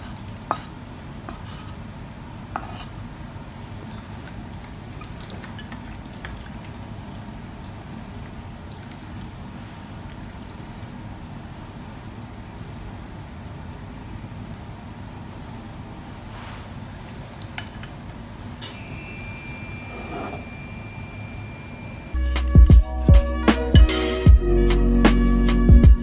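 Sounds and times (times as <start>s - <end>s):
spaghetti scraped from pan: 2.6s - 2.9s.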